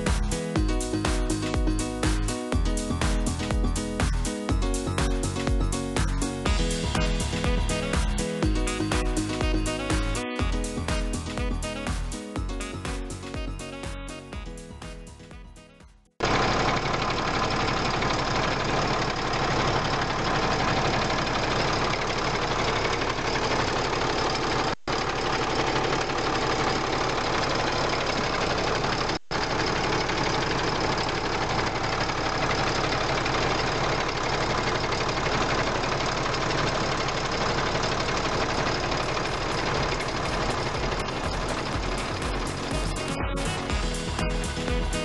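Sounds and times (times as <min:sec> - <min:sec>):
truck diesel engine idling: 0:16.2 - 0:45.0.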